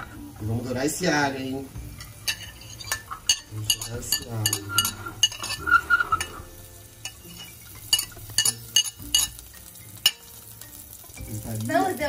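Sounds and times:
garlic sizzling in oil: 0.0s - 12.0s
knife scraping and tapping plate: 2.0s - 9.4s.

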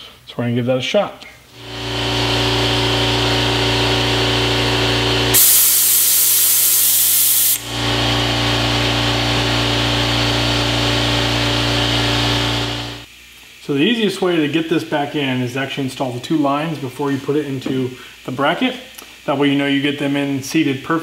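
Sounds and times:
vacuum bleeder hissing: 1.5s - 21.0s
low hum: 1.6s - 13.1s.

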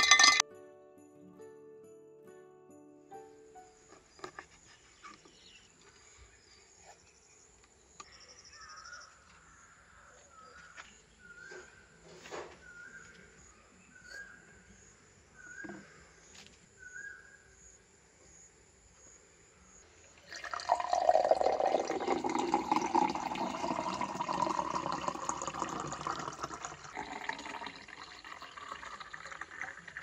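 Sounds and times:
juice pouring into a glass: 20.2s - 30.0s.

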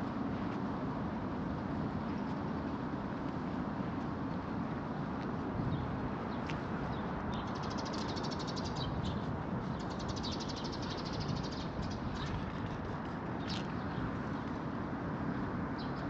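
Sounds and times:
low rumble of city traffic: 0.0s - 16.0s
bird chirp: 6.9s - 12.7s.

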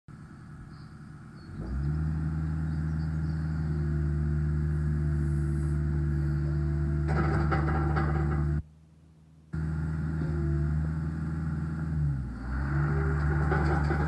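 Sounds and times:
excavator diesel engine: 0.1s - 8.6s, 9.6s - 14.0s
higher steady hydraulic hum: 3.3s - 8.6s.

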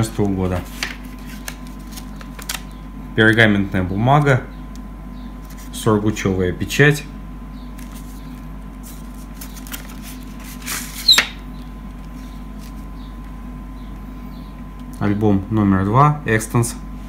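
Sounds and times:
steady low hum: 0.0s - 17.0s
paper rustling: 0.1s - 2.7s, 7.8s - 12.9s.

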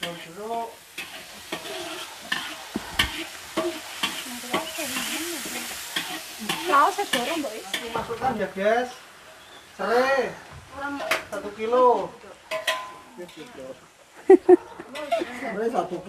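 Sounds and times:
metal spatula scraping a wok: 0.0s - 8.1s
paste sizzling: 0.0s - 12.4s.

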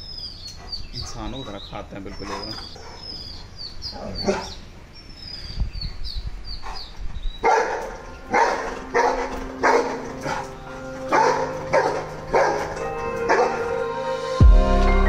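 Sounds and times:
dog barking: 0.6s - 3.2s, 4.2s - 4.6s, 7.4s - 10.5s, 11.1s - 13.8s.

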